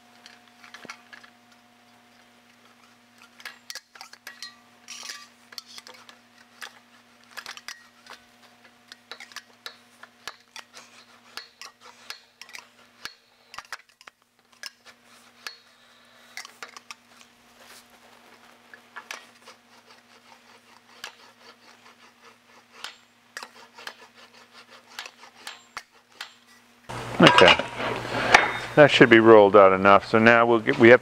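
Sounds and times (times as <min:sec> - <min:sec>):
steady low hum: 0:00.0 - 0:31.0
sheet metal clinking and scraping: 0:02.8 - 0:17.3, 0:27.2 - 0:29.0.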